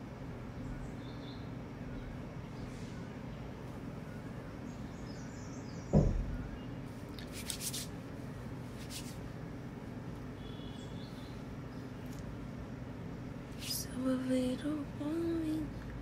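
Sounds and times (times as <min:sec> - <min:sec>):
low room hum: 0:00.0 - 0:16.0
dull thump: 0:05.9 - 0:06.4.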